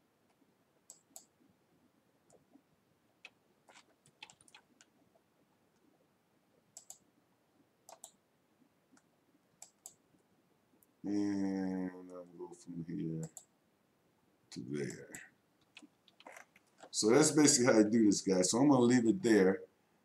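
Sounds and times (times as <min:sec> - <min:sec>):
faint computer mouse clicks: 0:00.9 - 0:01.3, 0:06.7 - 0:07.0, 0:07.9 - 0:08.2, 0:08.9 - 0:10.0, 0:13.2 - 0:13.5.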